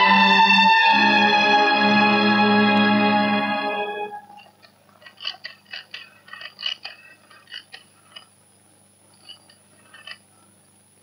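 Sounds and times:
rotary telephone dial clicking: 4.4s - 8.3s, 9.1s - 10.3s.

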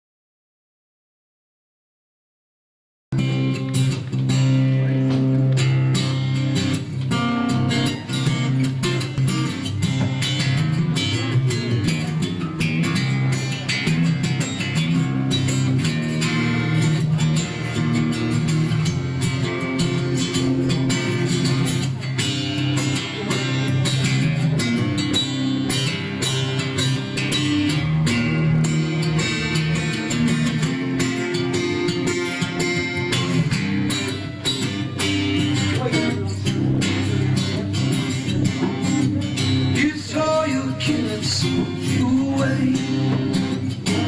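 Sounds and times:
solo acoustic guitar: 3.2s - 44.0s.

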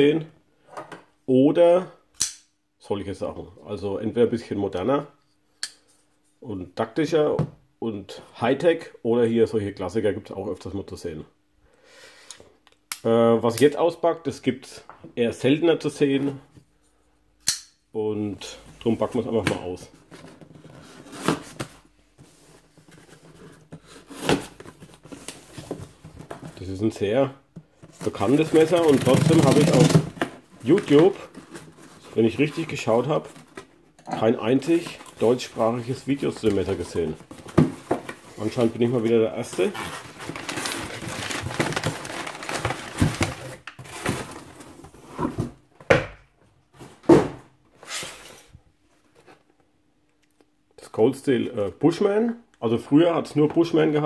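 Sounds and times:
paper rustling and crackling: 27.8s - 33.7s, 34.6s - 44.8s.

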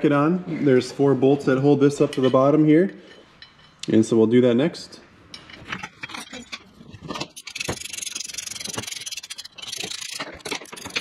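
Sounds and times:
hand ratchet clicking rapidly: 7.3s - 11.0s.

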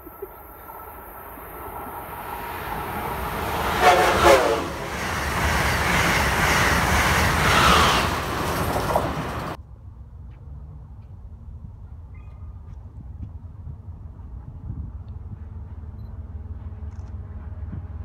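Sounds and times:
roar of train cars passing: 0.0s - 9.6s, 13.9s - 18.0s
train wheels rushing on rail: 0.1s - 9.6s, 13.9s - 18.0s
train horn blast: 2.9s - 5.3s.

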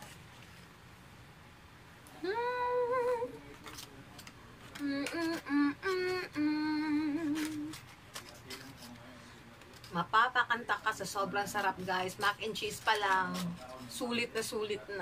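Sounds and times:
woman humming with mouth full: 2.2s - 3.4s, 4.8s - 7.8s.

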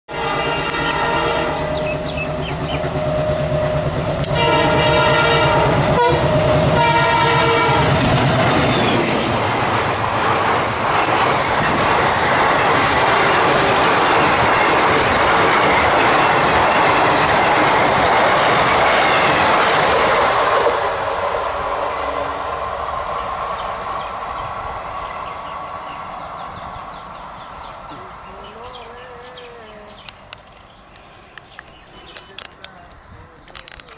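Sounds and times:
locomotive horn blasts: 0.1s - 2.1s, 2.8s - 8.1s
diesel engine throbbing: 1.4s - 15.4s
coaches clattering over rails: 1.6s - 21.6s.

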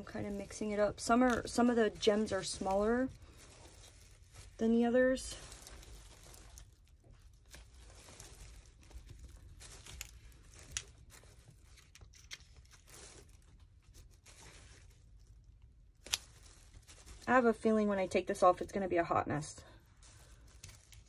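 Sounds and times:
plastic wrap crinkling: 0.0s - 21.0s.

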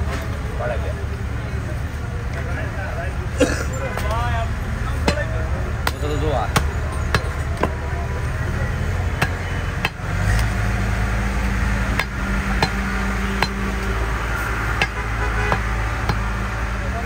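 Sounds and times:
cleaver chopping on wooden block: 11.9s - 13.7s, 14.8s - 16.3s.

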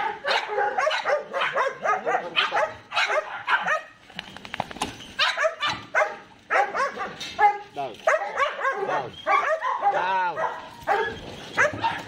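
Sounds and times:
dog yipping and whining: 8.2s - 9.9s.

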